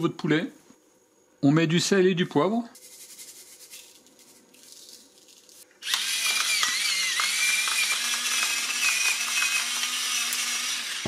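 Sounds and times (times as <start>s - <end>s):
salt shaker shaking: 2.7s - 5.7s
electric pepper mill grinding: 5.8s - 11.0s.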